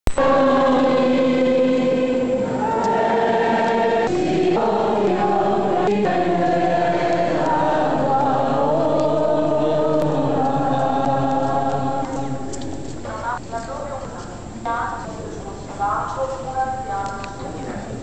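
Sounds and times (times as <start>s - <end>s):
choir singing a slow hymn: 0.1s - 13.0s.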